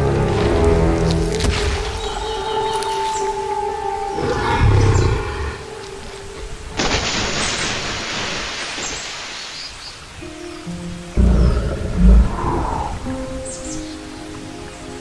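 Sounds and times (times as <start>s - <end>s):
background music: 0.0s - 15.0s
dinosaur roar: 4.0s - 5.8s, 11.1s - 13.3s
low growl: 11.2s - 13.2s.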